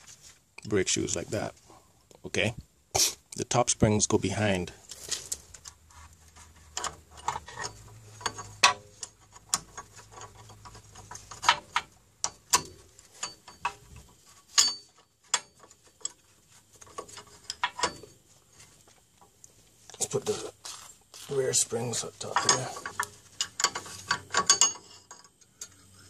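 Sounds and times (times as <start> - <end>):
metallic clicks and clinks: 22.2 - 26.0.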